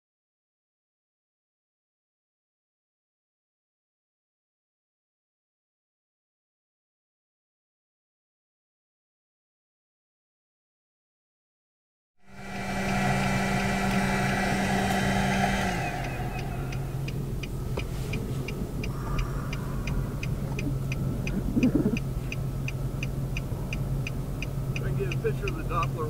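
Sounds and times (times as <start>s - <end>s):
car engine idling: 12.2s - 26.0s
droning machine: 12.2s - 26.0s
indicator flasher ticking: 12.3s - 26.0s.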